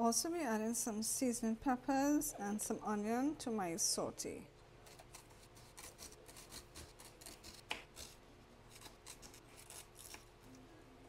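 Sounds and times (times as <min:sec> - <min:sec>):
knife slicing onion on wooden board: 0:04.9 - 0:10.3.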